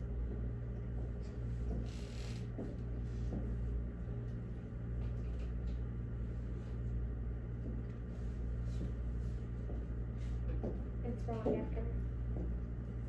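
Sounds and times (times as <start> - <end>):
low room hum: 0.0 - 13.0
faint taps and rustles: 2.5 - 3.6, 7.6 - 12.7.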